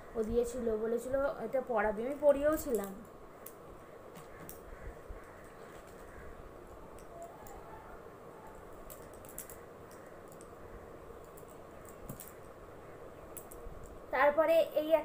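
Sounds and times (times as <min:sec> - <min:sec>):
clothes rustling: 0:02.0 - 0:06.5.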